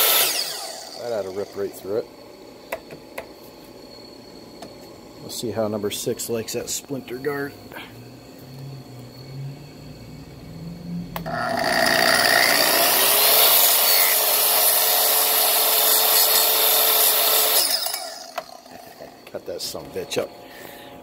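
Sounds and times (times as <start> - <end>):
plunge saw motor whine: 0.0 - 21.0.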